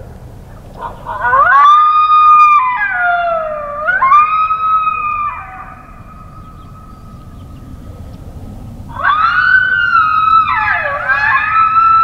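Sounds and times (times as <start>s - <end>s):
coyote howling: 0.5s - 12.0s.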